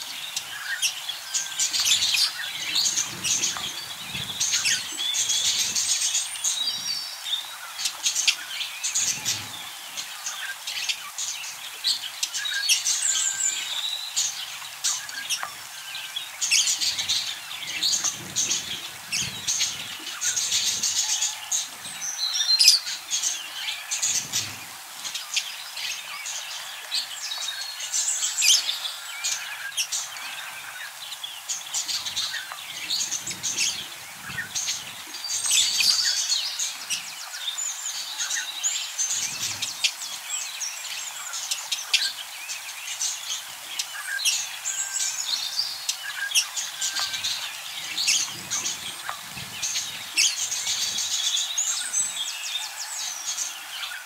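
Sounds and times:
budgerigars chattering: 0.0s - 42.3s, 42.9s - 54.0s
wing flutters: 0.4s - 10.4s, 12.5s - 25.4s, 31.5s - 37.4s, 46.3s - 52.2s.

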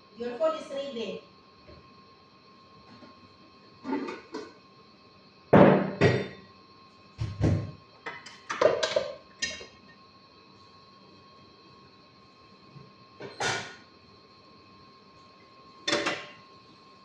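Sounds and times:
knocks and thuds: 7.2s - 7.8s.

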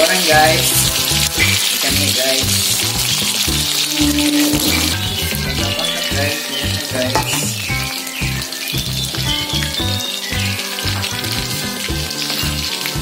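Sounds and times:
chicken deep-frying in oil: 0.0s - 13.0s
music with bass beat: 0.4s - 13.0s.

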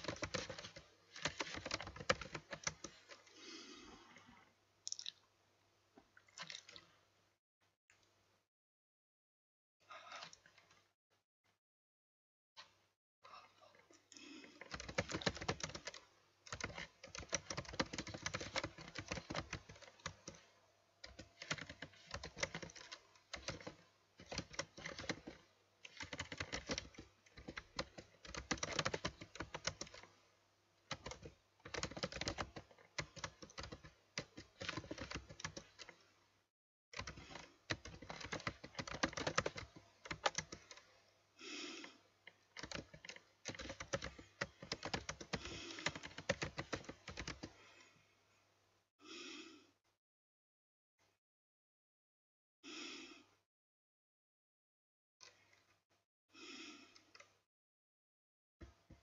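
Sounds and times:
typing on computer keyboard: 0.0s - 3.2s, 14.6s - 30.1s, 30.9s - 36.0s, 37.0s - 40.8s, 42.6s - 47.6s.

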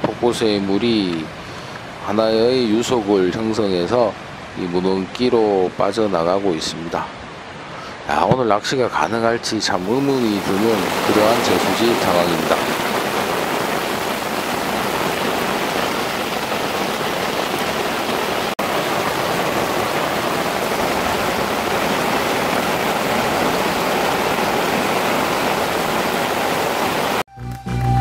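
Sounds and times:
heavy rain on water: 9.7s - 27.3s.

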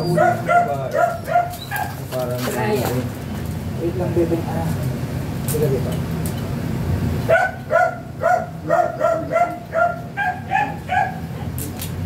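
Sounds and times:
dog yelping whines: 0.0s - 2.0s, 7.3s - 11.3s.

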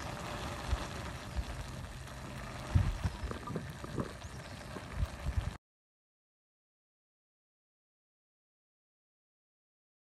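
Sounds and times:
broth boiling and bubbling: 0.0s - 5.6s.

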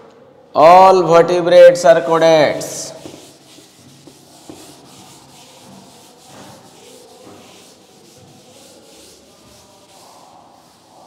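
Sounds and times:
duster rubbing on blackboard: 2.8s - 11.0s.

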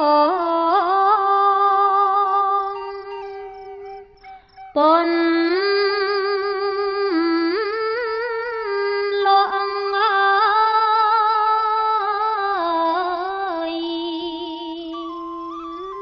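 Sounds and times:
woman chanting verse: 4.8s - 15.0s.

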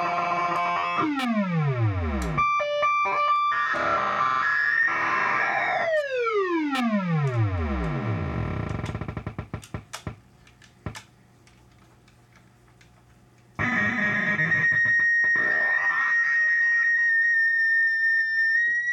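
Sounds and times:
synthesizer pitch sweep: 0.0s - 8.5s
scattered clicks: 0.5s - 2.4s, 5.8s - 8.0s
distorted high held tone: 13.6s - 18.9s.

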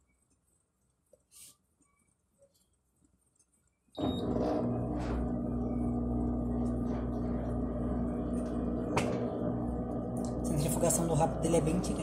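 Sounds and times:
washing machine spinning hum: 4.0s - 12.0s.

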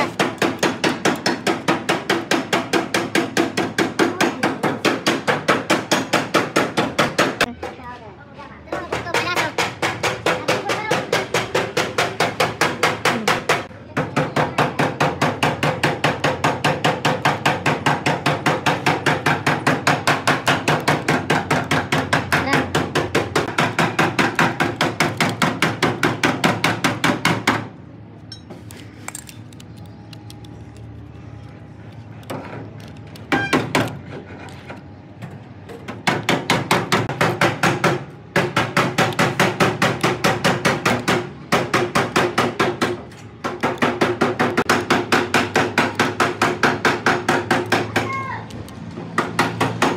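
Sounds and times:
rapid even hammering: 0.0s - 7.5s, 8.7s - 27.8s, 35.8s - 48.4s, 49.1s - 49.9s.

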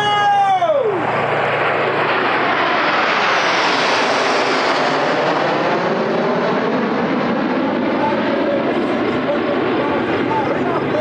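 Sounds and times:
jets passing over: 0.0s - 11.0s.

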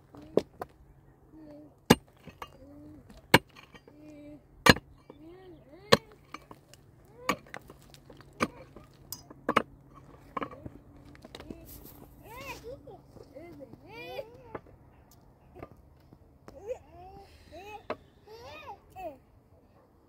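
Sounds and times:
hard object striking: 4.6s - 5.1s.

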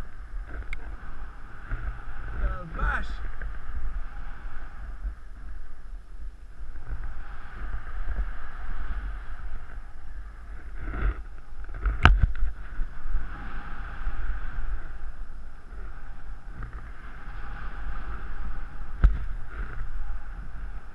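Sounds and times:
wind buffeting microphone: 0.0s - 20.9s.

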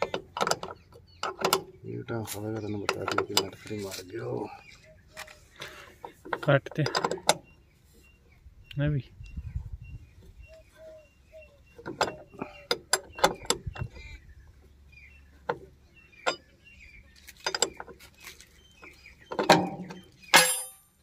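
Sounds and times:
spanner clicking on metal bolts: 0.0s - 4.0s, 6.0s - 7.4s.

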